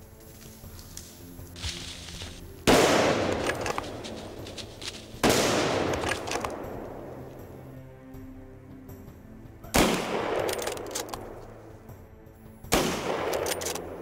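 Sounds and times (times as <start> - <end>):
rifle shots echoing: 2.6 - 7.6, 9.8 - 11.4, 12.7 - 14.0.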